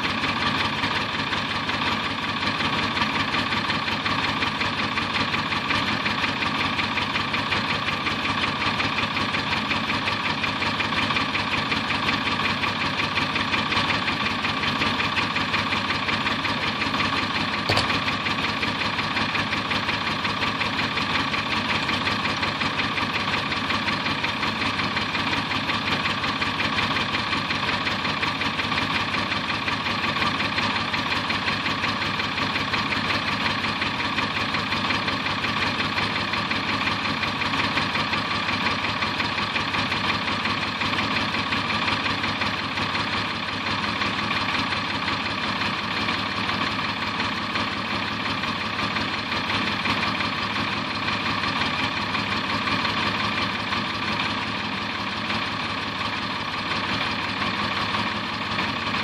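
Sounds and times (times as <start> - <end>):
diesel truck engine idling: 0.0 - 59.0.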